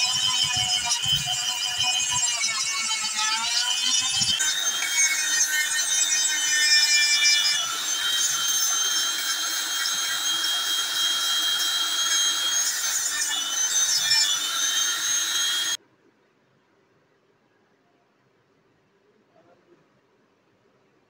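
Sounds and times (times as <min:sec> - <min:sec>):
rotary tool sanding wood: 0:00.0 - 0:15.8.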